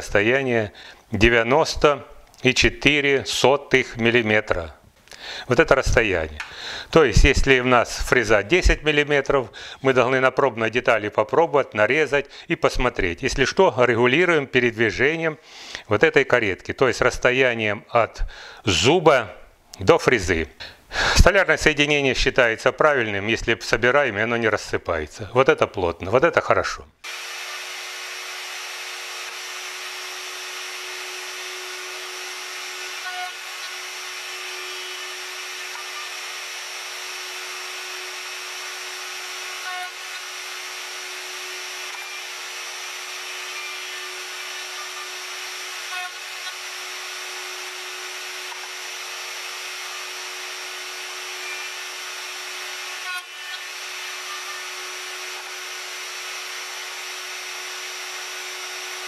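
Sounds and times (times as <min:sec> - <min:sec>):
router whining: 0:27.0 - 0:59.0.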